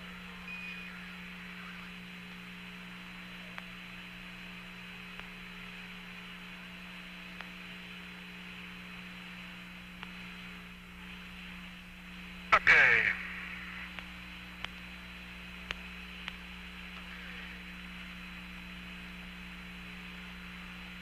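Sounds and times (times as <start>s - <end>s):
radio channel hiss and hum: 0.0s - 21.0s.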